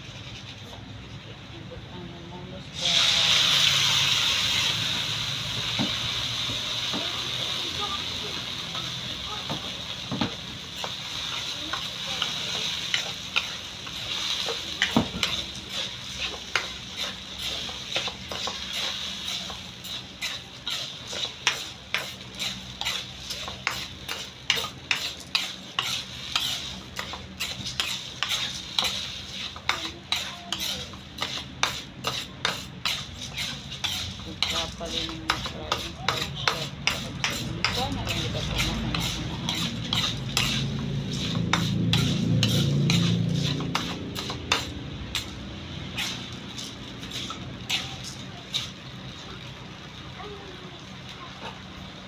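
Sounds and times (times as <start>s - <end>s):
metal spoon scraping a wok: 0.0s - 0.8s, 2.8s - 5.2s, 10.6s - 48.9s
food sizzling: 2.6s - 52.0s.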